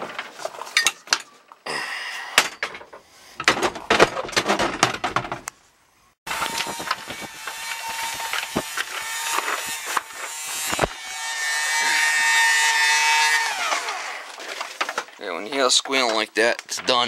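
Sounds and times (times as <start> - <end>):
electric pump whining: 6.3 - 14.4.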